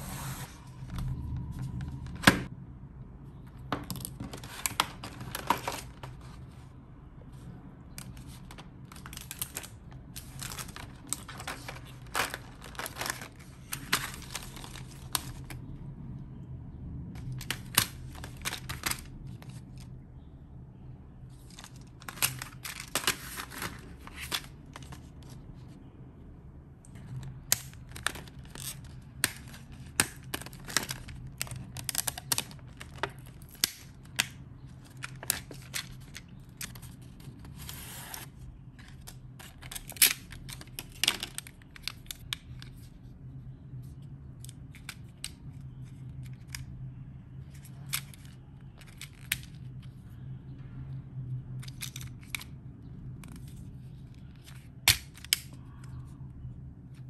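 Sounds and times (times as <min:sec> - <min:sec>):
low steady hum: 0:00.0 - 0:57.0
plastic packaging crinkling: 0:03.9 - 0:06.4, 0:07.9 - 0:15.6, 0:17.2 - 0:19.8, 0:27.0 - 0:42.8.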